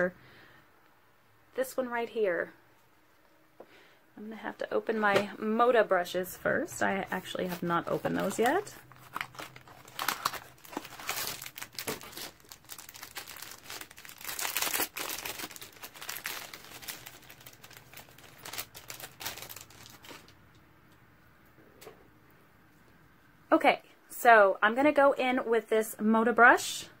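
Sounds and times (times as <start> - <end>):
packaging crinkling and tearing: 7.2 - 20.4.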